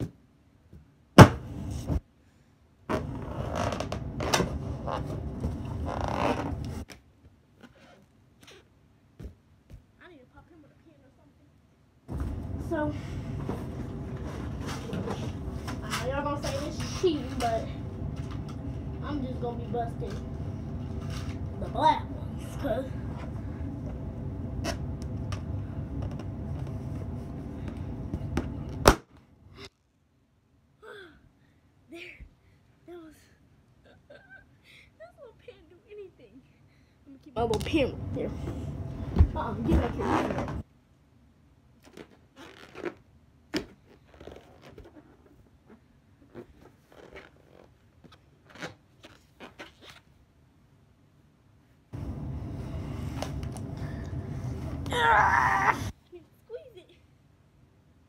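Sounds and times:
balloon popping bang: 1.2s - 1.5s
balloon squeaking on carpet: 2.9s - 6.9s, 7.6s - 8.8s, 41.8s - 50.1s.

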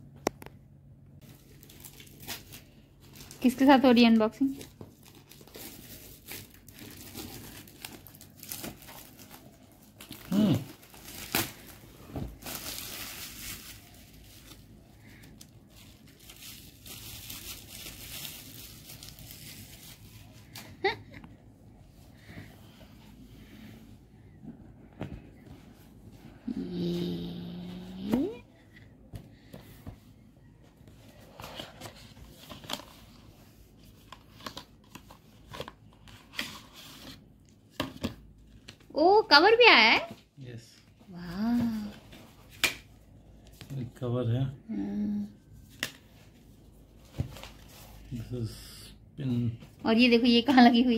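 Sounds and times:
plastic wrapping crinkling: 1.2s - 21.0s.

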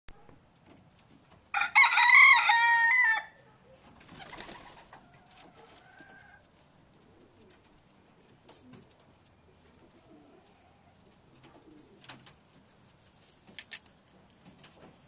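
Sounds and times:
rooster crowing: 1.5s - 3.4s
pigeon wings flapping: 3.8s - 5.6s.

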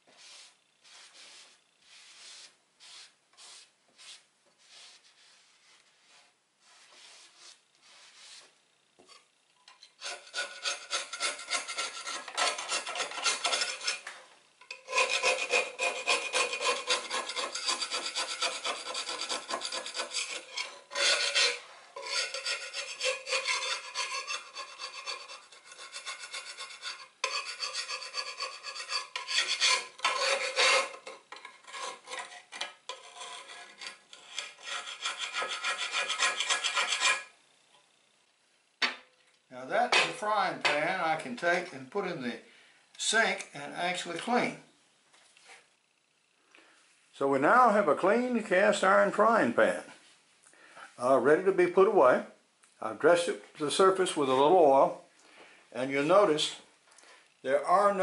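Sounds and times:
metal scraper rasping on frying pan: 9.9s - 14.1s, 14.7s - 37.3s.

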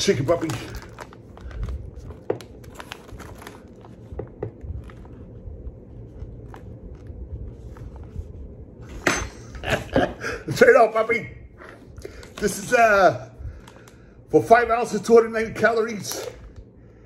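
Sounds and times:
plastic bag crinkling: 0.0s - 5.2s
low hum: 0.0s - 14.4s.

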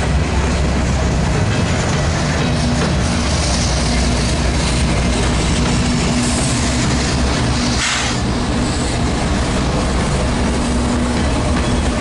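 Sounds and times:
diesel locomotive engine drone: 0.0s - 12.0s
steel wheels on rails: 0.0s - 12.0s
brief hiss: 7.7s - 8.2s.

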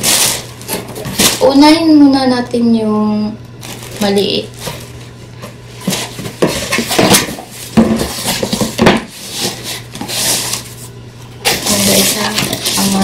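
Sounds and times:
cardboard rustle: 0.0s - 1.5s, 3.6s - 13.0s
cardboard knocks and scrapes: 4.6s - 10.6s.

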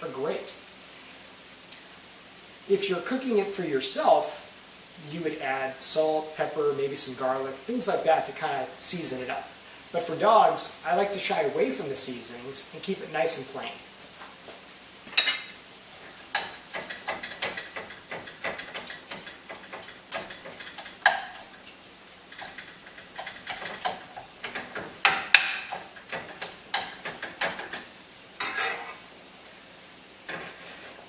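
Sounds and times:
faint sizzle: 0.0s - 31.0s
metal spatula scraping a pan: 15.2s - 21.5s, 22.3s - 29.0s, 30.3s - 31.0s.

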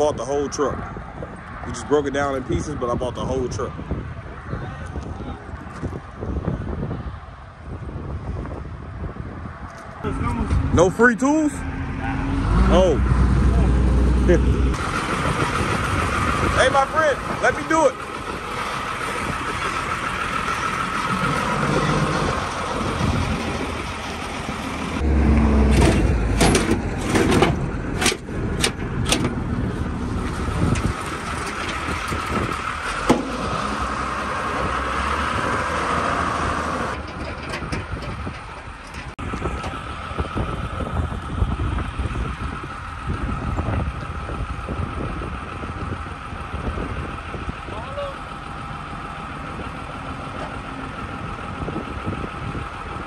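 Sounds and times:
vehicle engine running: 10.0s - 53.0s
loud knocks and metal clanks: 25.7s - 29.4s, 30.6s - 33.8s, 37.0s - 39.2s.

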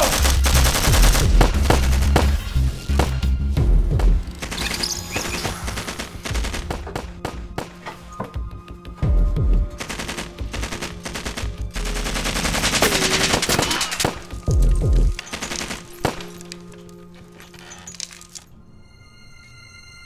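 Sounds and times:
rapid gunfire: 0.0s - 2.4s, 4.4s - 7.8s, 9.8s - 14.3s, 15.1s - 16.4s
tense film score: 0.0s - 20.0s.

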